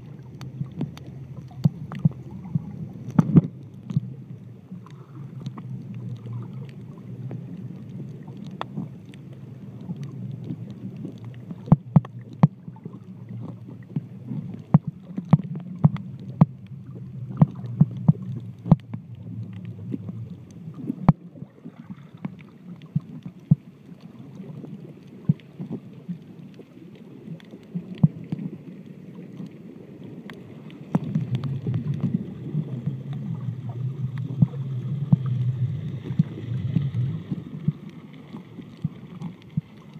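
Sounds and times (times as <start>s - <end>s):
muffled underwater rumble: 0.0s - 39.9s
sharp underwater clicks: 0.1s - 4.1s, 4.8s - 21.2s, 27.4s - 28.5s, 30.2s - 39.9s.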